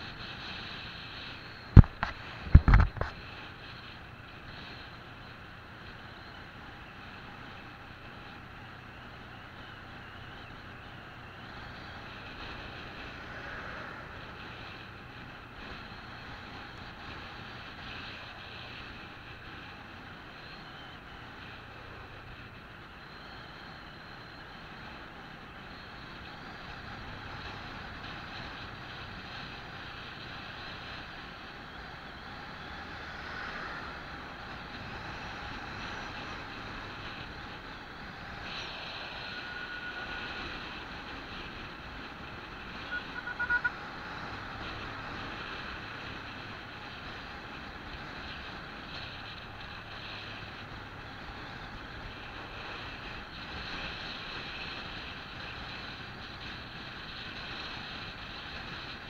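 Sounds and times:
wind rush on microphone: 0:00.0 - 0:04.7
motorbike road noise: 0:00.0 - 0:59.0.

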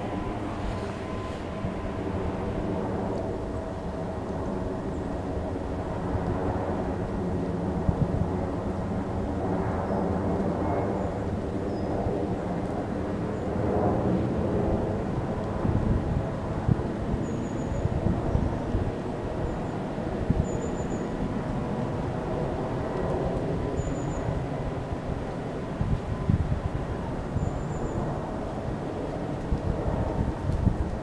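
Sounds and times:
engine drone: 0:00.0 - 0:05.8.

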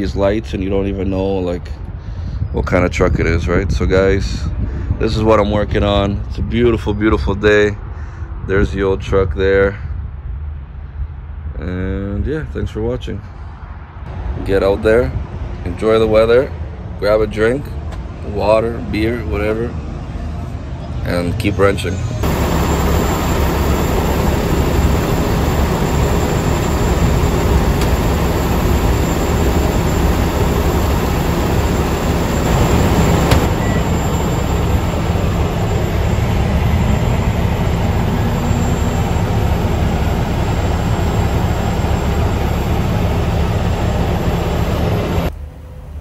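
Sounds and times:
microwave fan whoosh: 0:22.2 - 0:46.0
microwave humming: 0:22.2 - 0:46.0.

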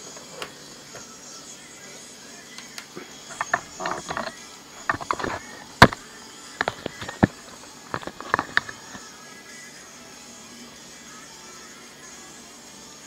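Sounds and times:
laptop and camera handling knocks: 0:03.3 - 0:06.0, 0:06.6 - 0:09.0.

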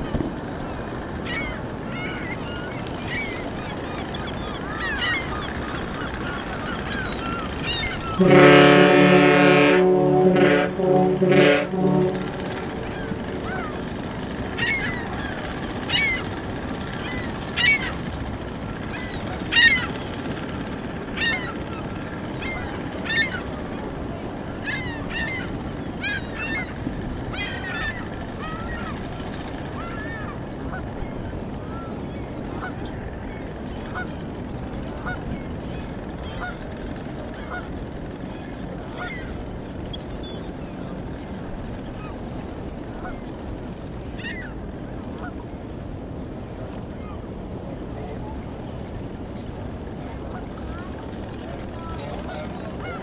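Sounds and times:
low background rush: 0:00.0 - 0:53.0
geese honking: 0:06.3 - 0:16.4, 0:39.0 - 0:39.3.

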